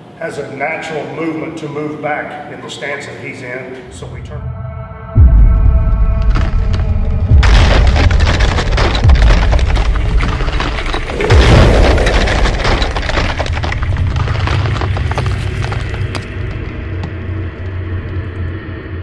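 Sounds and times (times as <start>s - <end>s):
deep booms: 4.4s - 17.4s
concrete wall cracking: 6.3s - 17.1s
rubble crumbling and clattering: 6.3s - 17.6s.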